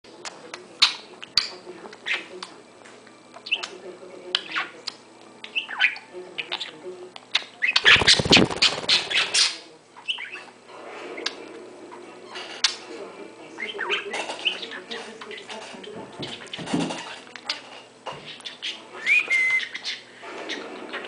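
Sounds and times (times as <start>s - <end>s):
budgies chirping and squawking: 5.4s - 10.6s, 13.6s - 21.0s.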